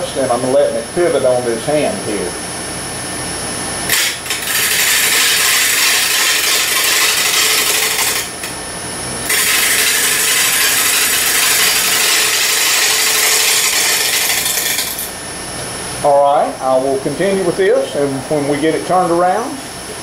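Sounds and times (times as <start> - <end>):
wood being shaved on lathe: 3.9 - 8.5, 9.3 - 15.1
lathe motor hum: 3.9 - 8.6, 9.2 - 15.2.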